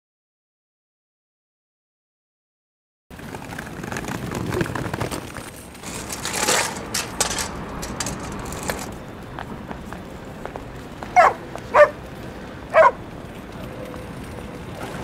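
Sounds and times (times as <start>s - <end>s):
footsteps on paving stones: 5.2s - 13.5s.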